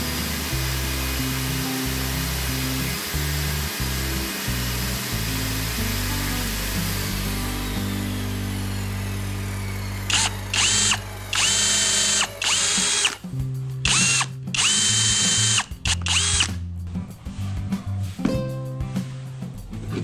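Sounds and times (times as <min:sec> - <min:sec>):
cordless drill boring into wood: 0:00.0 - 0:13.2, 0:13.8 - 0:16.5.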